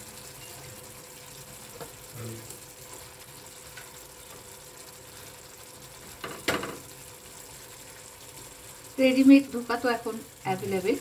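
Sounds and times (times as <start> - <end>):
curry sizzling and bubbling: 0.0 - 11.0
pan clatter: 6.2 - 6.9.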